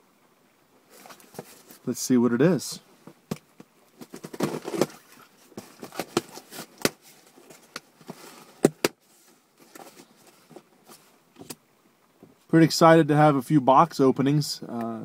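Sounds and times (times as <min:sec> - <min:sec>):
cardboard rustling and scraping: 0:00.9 - 0:01.9, 0:03.6 - 0:11.6.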